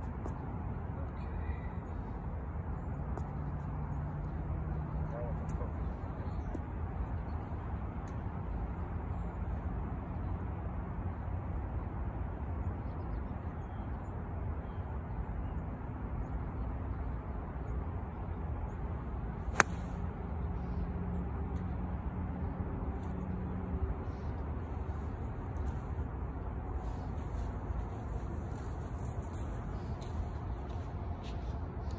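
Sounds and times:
golf club striking ball: 0:19.5 - 0:19.9.

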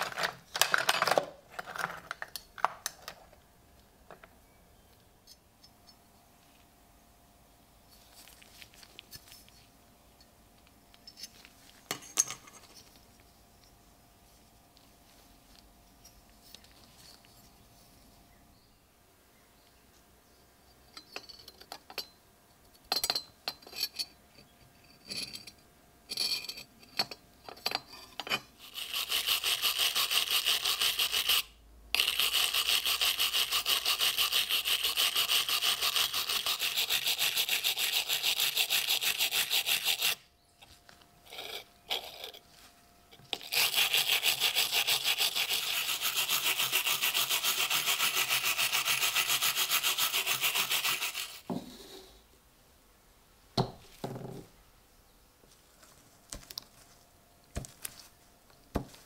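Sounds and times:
wire brush scrubbing metal: 0:28.6 - 0:31.4, 0:32.0 - 0:40.2, 0:43.3 - 0:51.4.

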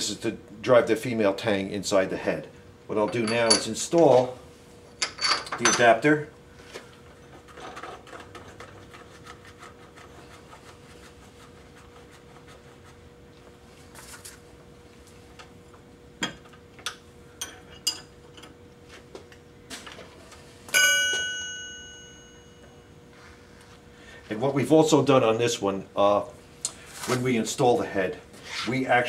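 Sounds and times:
faint steady hum: 0:00.0 - 0:29.0
sharp metal clang ringing: 0:20.8 - 0:22.6.

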